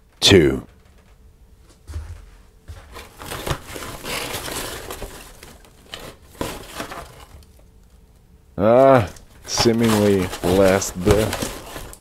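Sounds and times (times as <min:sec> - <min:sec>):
shredded paper rustling: 0:02.7 - 0:07.6, 0:08.6 - 0:12.0.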